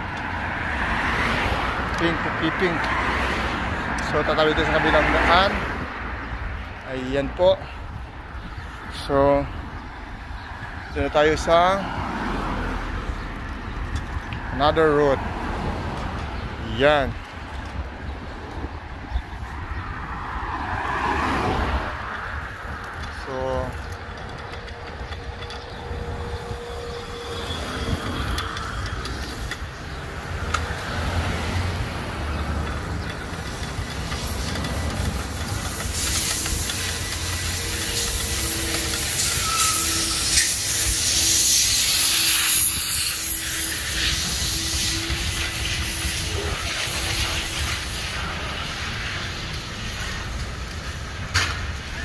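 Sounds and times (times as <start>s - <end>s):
road and traffic noise: 0.0s - 52.0s
wind rumbling on microphone: 5.4s - 52.0s
loud hiss: 35.1s - 50.3s.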